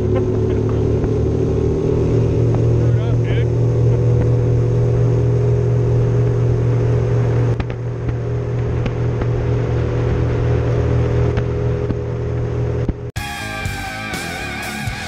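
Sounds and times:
outboard motor running: 0:00.0 - 0:15.0.

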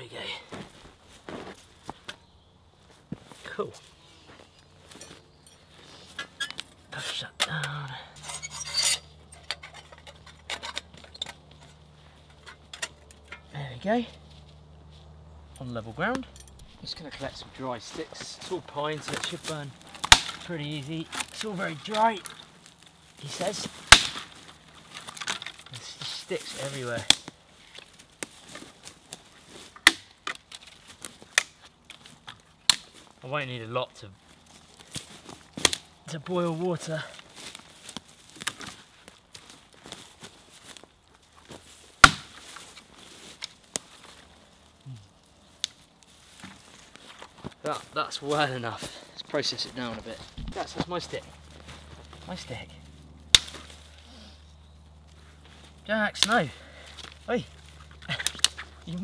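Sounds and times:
dry sticks snapping: 0:04.6 - 0:13.6, 0:15.4 - 0:33.2, 0:34.2 - 0:36.1, 0:36.9 - 0:59.0
metal panels scraping: 0:08.2 - 0:13.5
steel panels clinking: 0:08.2 - 0:13.5.

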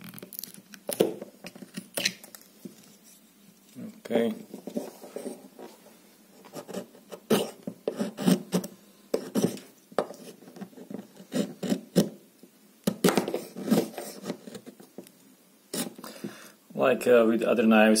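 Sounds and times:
knife scraping wood: 0:06.5 - 0:12.2.

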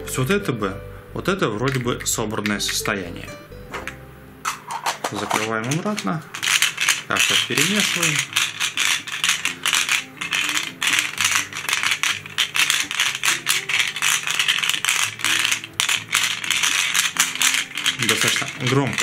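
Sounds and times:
plastic pieces rattling in a sphere: 0:05.0 - 0:19.0.

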